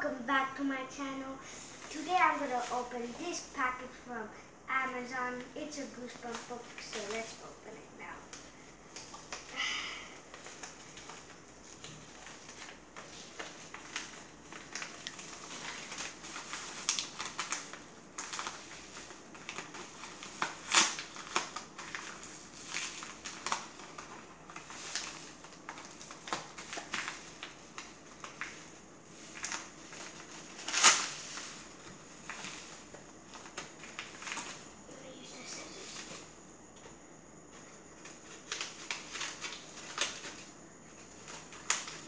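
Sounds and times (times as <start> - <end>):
paper envelope crinkling: 1.4 - 4.0, 5.3 - 9.6, 10.2 - 36.3, 37.9 - 42.0.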